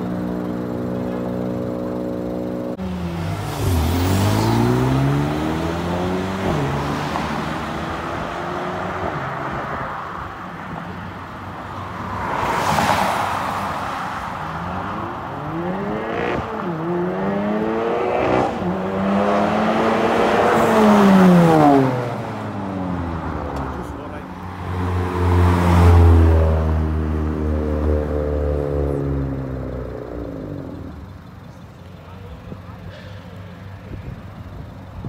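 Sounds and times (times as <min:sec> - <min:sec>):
cars accelerating hard: 0:01.9 - 0:10.2, 0:11.9 - 0:31.2
car passing by: 0:12.0 - 0:14.6, 0:19.2 - 0:28.9.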